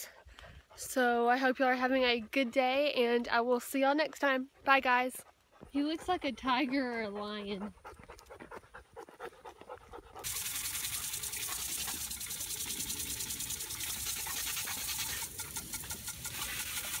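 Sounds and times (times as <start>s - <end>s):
dog biting at water spray: 10.2s - 17.0s
water spraying from hose: 10.2s - 17.0s.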